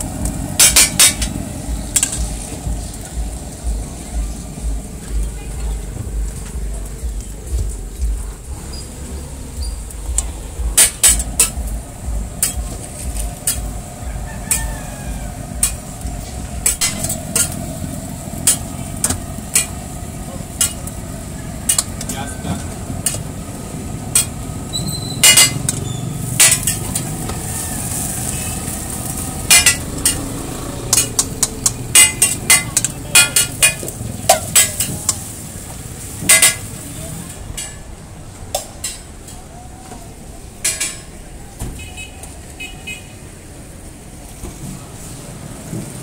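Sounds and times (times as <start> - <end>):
burgers sizzling on griddle: 0.0 - 38.0, 43.1 - 46.0
metal spatula scraping griddle: 15.6 - 17.8, 24.1 - 35.3.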